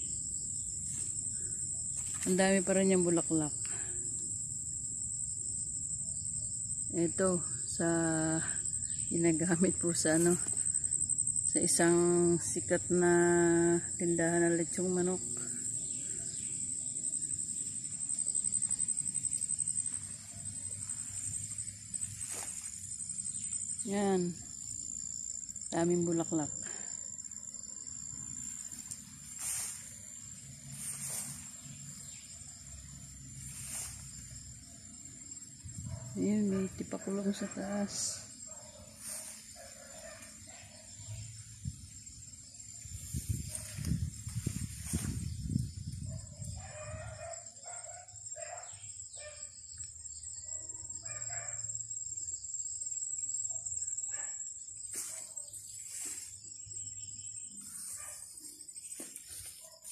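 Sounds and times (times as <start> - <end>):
crickets trilling: 0.0 - 59.9
handling and brushing noise: 28.7 - 30.0, 30.7 - 31.6, 33.4 - 34.2, 57.6 - 59.9.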